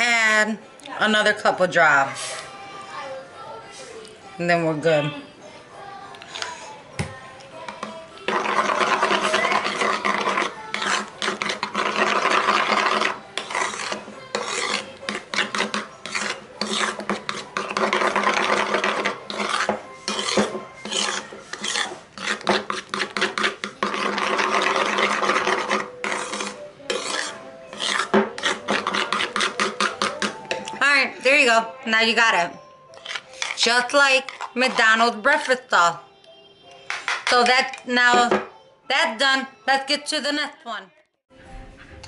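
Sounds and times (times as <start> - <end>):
knife scraping sauce in paper bowl: 6.1 - 6.8, 7.6 - 31.3, 32.9 - 35.8.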